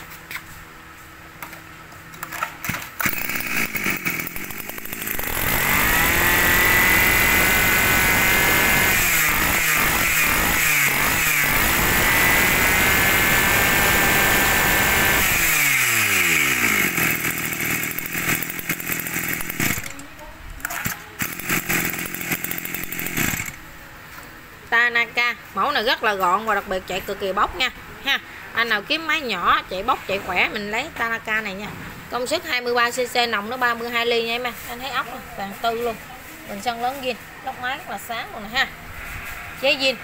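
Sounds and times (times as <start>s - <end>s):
brush cutter engine revving: 2.6s - 23.6s.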